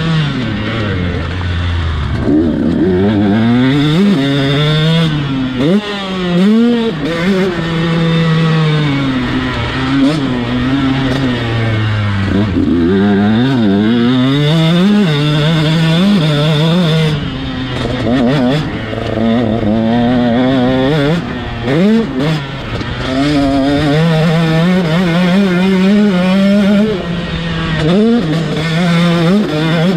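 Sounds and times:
two-stroke engine revving hard: 0.0 - 29.9.

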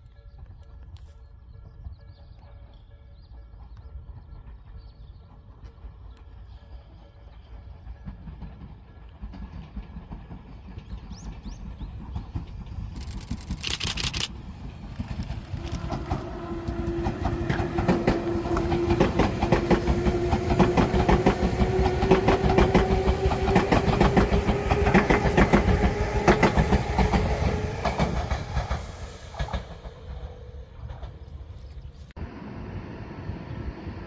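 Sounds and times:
wheels clicking over rail joints: 8.0 - 32.0
train motor whine: 12.9 - 31.1.

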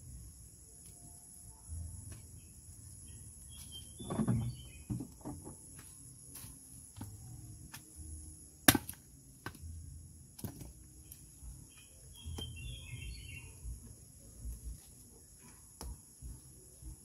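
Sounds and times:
high insect hum: 0.0 - 17.0
bird chirping: 1.5 - 5.1, 11.0 - 14.0.

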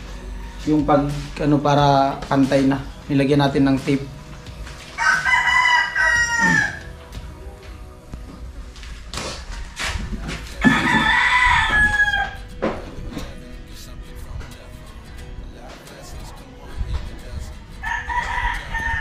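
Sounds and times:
rooster crowing: 5.0 - 7.0, 10.6 - 12.5, 17.8 - 19.0.

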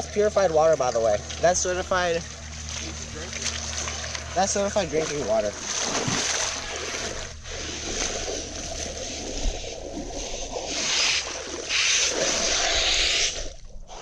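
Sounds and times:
high motor whine: 0.0 - 9.4
water splashing off tyres: 0.8 - 14.0.

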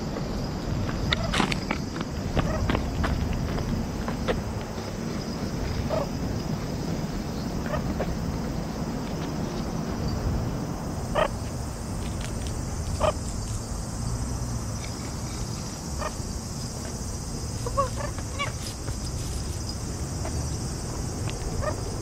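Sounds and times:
sharp animal calls: 11.1 - 11.4, 15.9 - 18.8.

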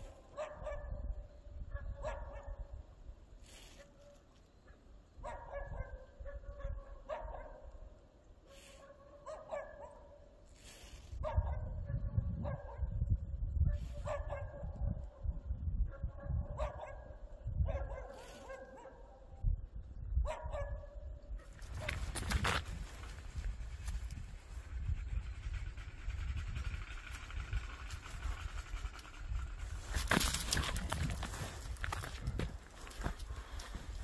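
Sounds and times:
dog barking: 0.2 - 1.1, 1.7 - 2.7, 5.2 - 7.8, 8.5 - 10.3, 11.2 - 13.0, 13.7 - 15.3, 15.9 - 19.3, 20.2 - 22.0
low rumble: 21.7 - 34.0.

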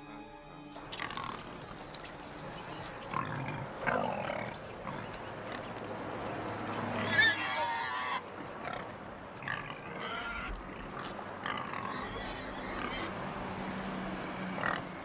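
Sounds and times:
pigs squealing: 0.9 - 1.7, 2.8 - 5.8, 7.0 - 13.2.

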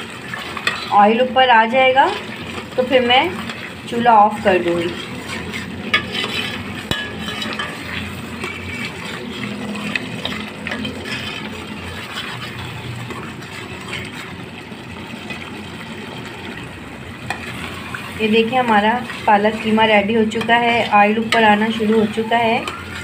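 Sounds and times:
spoon scraping a pot: 0.0 - 1.0, 1.7 - 14.5, 17.3 - 23.0
food sizzling in oil: 0.0 - 23.0
spoon clinking against pot: 5.9 - 8.8.

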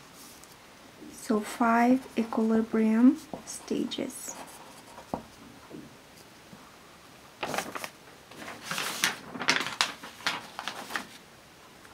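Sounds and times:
rustling on a desk: 3.1 - 6.3, 7.4 - 11.2.

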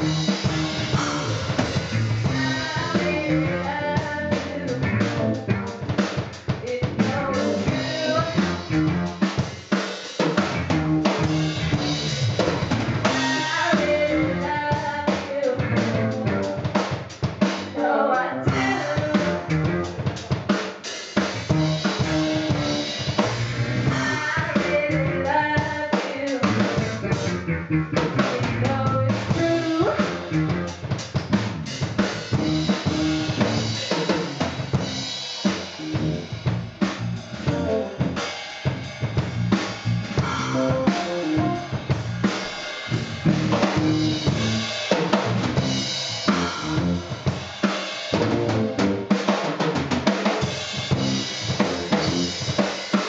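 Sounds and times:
drum kit groove: 0.0 - 53.0
soul band playing: 0.0 - 53.0
woman singing: 2.3 - 5.0, 6.6 - 8.5, 13.1 - 16.0, 17.8 - 19.5, 23.9 - 27.1, 28.5 - 30.3.

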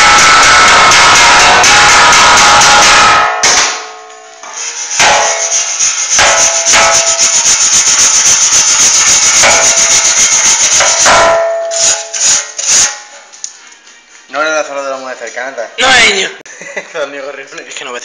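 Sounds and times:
angle grinder grinding steel: 4.5 - 13.0.

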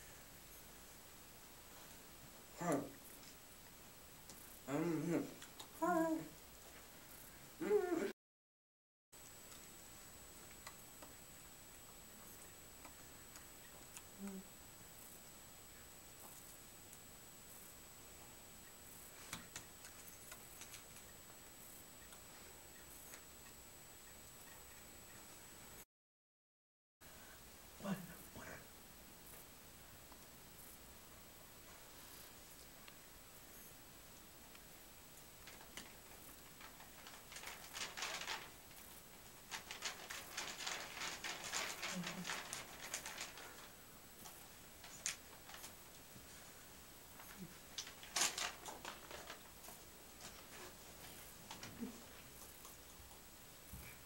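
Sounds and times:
faint high-pitched whine: 0.0 - 8.1, 9.2 - 25.8, 27.1 - 54.0.

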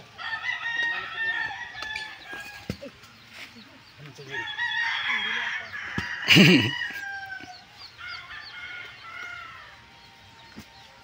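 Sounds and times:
rooster crowing: 0.2 - 2.8, 4.3 - 9.9.

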